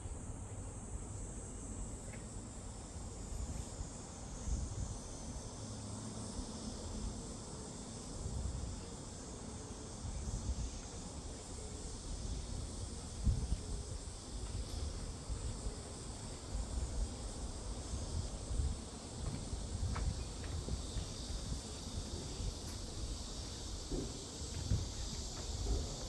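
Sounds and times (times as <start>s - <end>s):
high-pitched insect chorus: 0.0s - 26.0s
wind rumbling on microphone: 3.4s - 5.5s, 10.0s - 26.0s.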